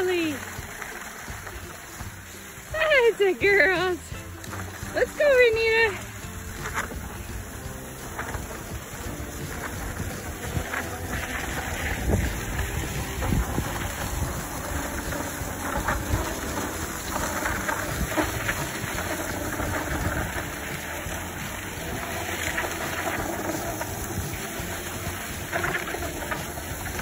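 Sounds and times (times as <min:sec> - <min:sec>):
skis scraping over snow: 0:00.0 - 0:27.0
wind on microphone: 0:07.0 - 0:27.0.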